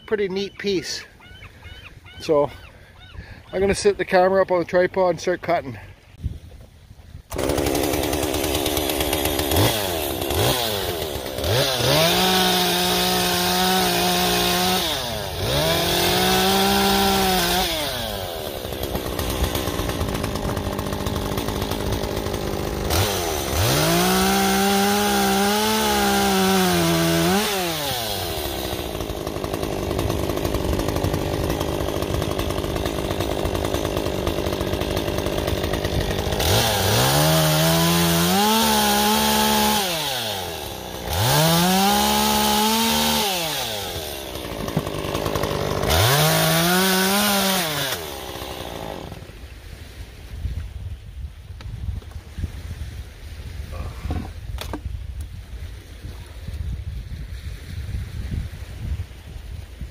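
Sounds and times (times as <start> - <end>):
chainsaw idling and revving: 7.3 - 49.9.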